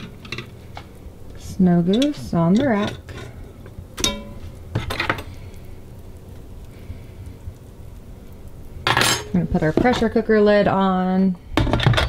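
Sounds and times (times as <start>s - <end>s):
low steady hum: 0.0s - 12.0s
wire rack clinking in metal pot: 1.8s - 5.3s, 8.9s - 9.4s.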